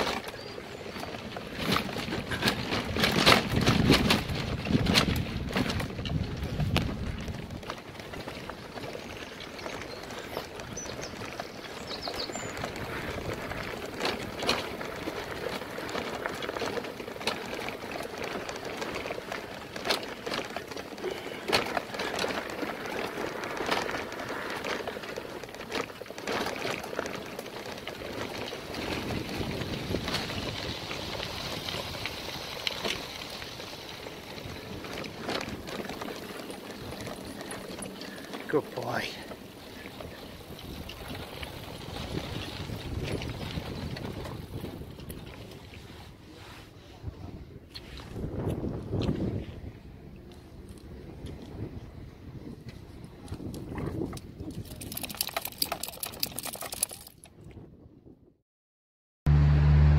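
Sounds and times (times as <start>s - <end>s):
tyres crunching on gravel: 0.0s - 45.7s
bike frame and load rattling: 0.0s - 57.4s.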